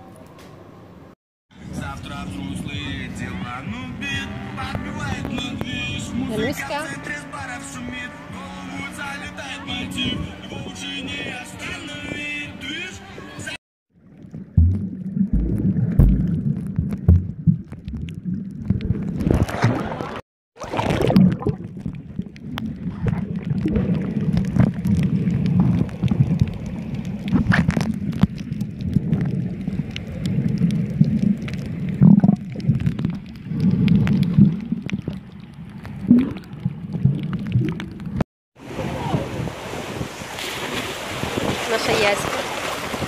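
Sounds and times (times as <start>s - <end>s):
water gurgling and bubbling: 13.9s - 40.1s
muffled underwater rumble: 14.0s - 39.6s.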